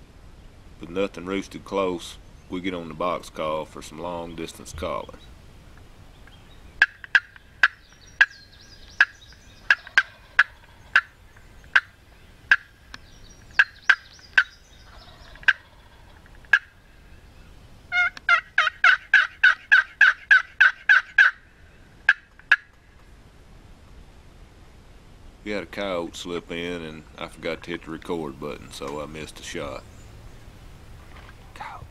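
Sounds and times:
turkey box call yelps: 6.8s - 12.9s, 13.5s - 16.9s, 17.9s - 21.5s, 22.1s - 22.8s.

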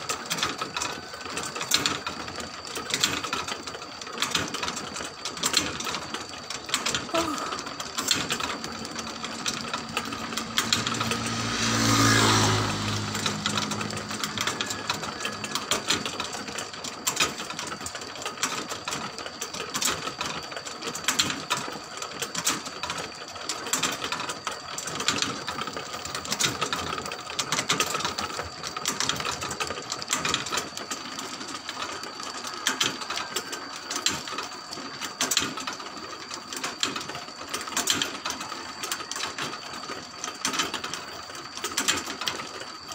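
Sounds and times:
low hum: 8.5s - 15.0s.

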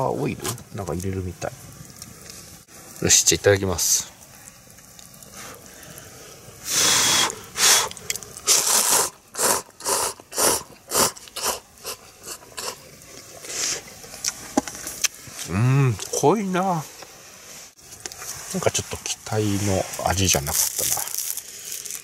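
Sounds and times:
person slurping noodles: 6.7s - 12.8s.

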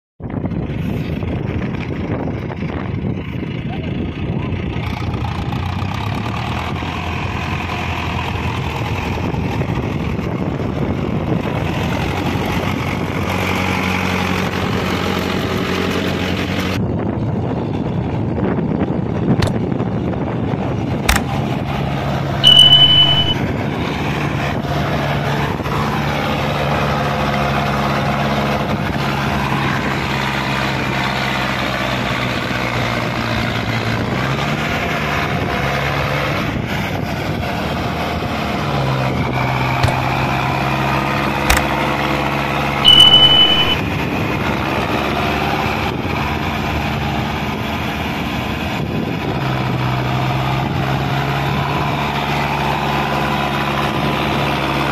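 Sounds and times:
tractor diesel engine under load: 0.2s - 54.9s
loud high steady beep: 22.4s - 23.4s, 42.8s - 43.9s.

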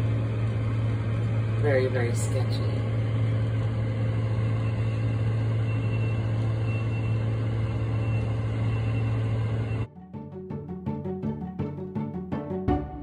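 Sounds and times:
engine idling: 0.0s - 9.9s.

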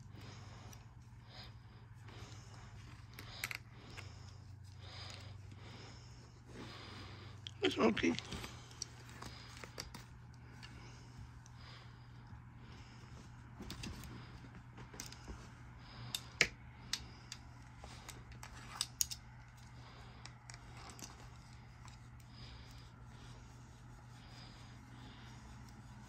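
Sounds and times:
faint low hum: 0.0s - 26.0s
scratching on cat fur: 20.8s - 26.0s.

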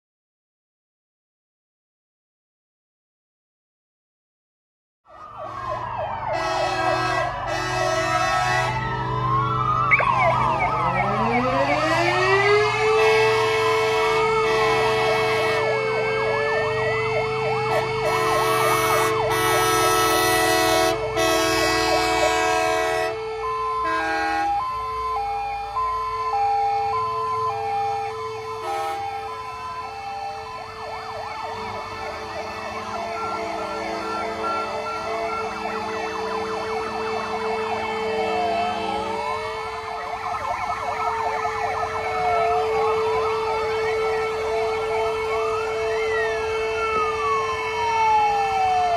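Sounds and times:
emergency sirens wailing: 5.1s - 48.9s
steady siren tone: 5.1s - 48.9s
two-note hi-lo siren: 5.1s - 48.9s
long loud horn blasts: 5.4s - 9.3s, 11.8s - 24.7s, 28.0s - 29.3s, 30.6s - 40.1s.

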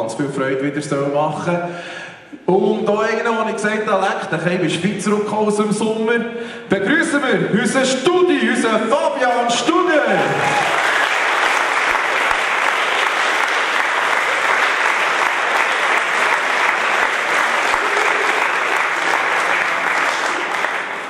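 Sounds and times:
audience applauding: 10.0s - 21.0s.

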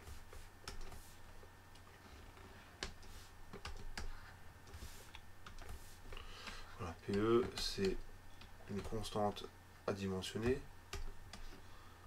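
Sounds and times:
faint low hum: 0.0s - 12.0s
stylus tapping drawing tablet: 2.8s - 9.2s.

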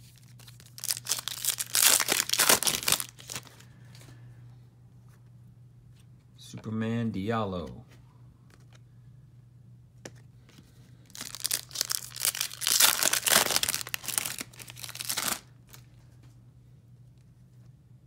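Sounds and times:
foil wrapper tearing and crinkling: 0.0s - 3.6s, 11.1s - 15.8s.

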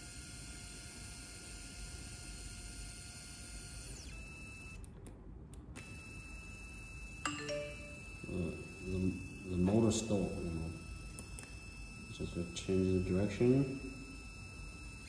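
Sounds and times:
stalling motor buzz: 0.0s - 4.8s, 8.0s - 15.0s
stepper motor whine and hum: 0.0s - 4.9s, 5.7s - 15.0s.

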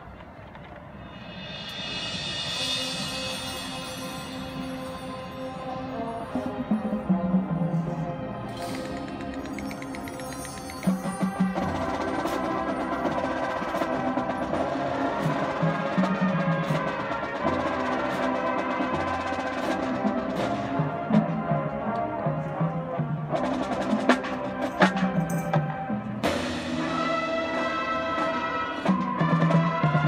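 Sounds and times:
marching band playing: 0.6s - 30.0s
sharp percussion hits: 1.0s - 5.8s, 8.5s - 20.7s.

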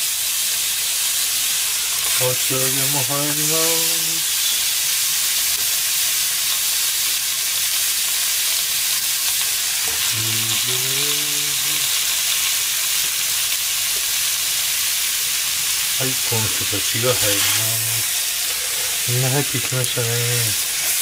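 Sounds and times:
food sizzling in a frying pan: 0.0s - 21.0s
low voice humming: 9.9s - 12.0s, 16.0s - 18.9s.

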